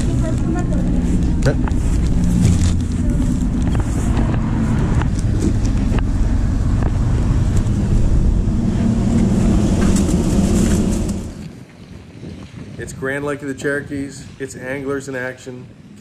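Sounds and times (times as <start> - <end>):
vehicle engine idling: 0.0 - 11.4.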